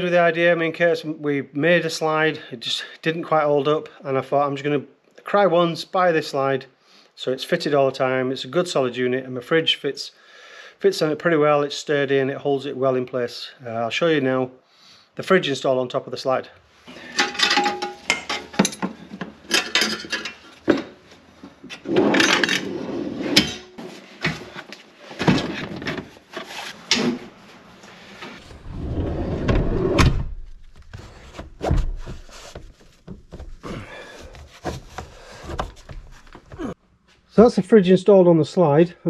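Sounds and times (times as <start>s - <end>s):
heavy rumbling scrape: 28.4s - 30.6s
knocks and scrapes of fridge handling: 28.7s - 36.7s.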